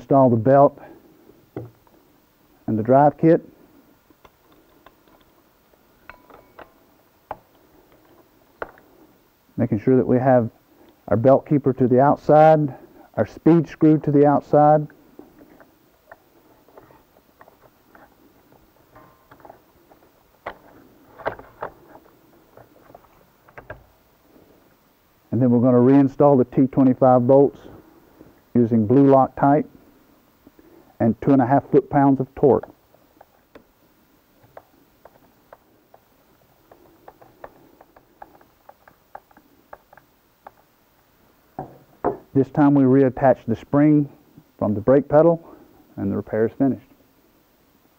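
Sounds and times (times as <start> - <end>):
metal clicks and knocks: 4.2 - 5.4, 6.0 - 8.8, 34.4 - 40.7.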